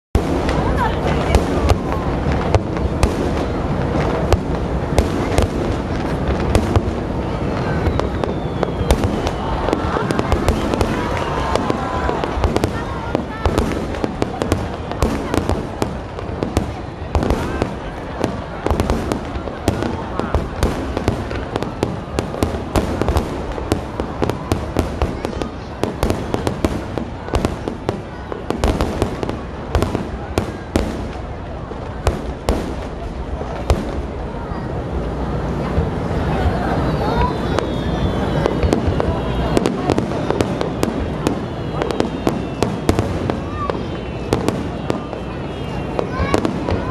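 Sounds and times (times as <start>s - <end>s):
fireworks bursting with sharp bangs: 0.1s - 46.9s
low rumble of distant detonations: 0.2s - 46.9s.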